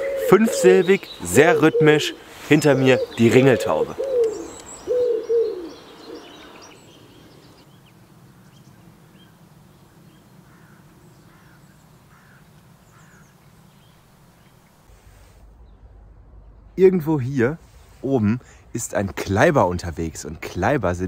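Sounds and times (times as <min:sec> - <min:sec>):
pigeon cooing: 0:00.0 - 0:02.2, 0:02.8 - 0:06.6
small birds chirping: 0:00.0 - 0:16.7.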